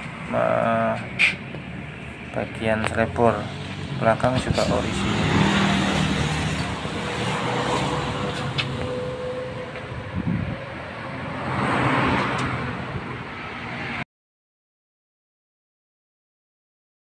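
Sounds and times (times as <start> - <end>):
road traffic passing: 0.0 - 14.0
vehicle passing: 0.0 - 14.0.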